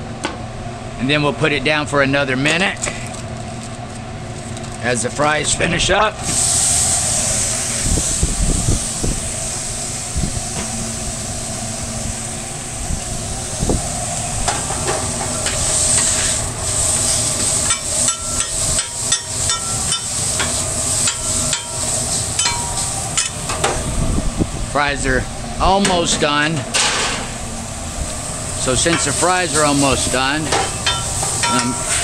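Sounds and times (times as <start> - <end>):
steak sizzling on griddle: 14.0 - 23.5, 26.9 - 32.0
low steady hum: 17.6 - 32.0.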